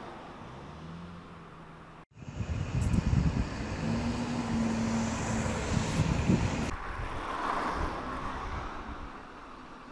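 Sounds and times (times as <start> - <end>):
vehicle engine and tyre noise: 0.0 - 9.9.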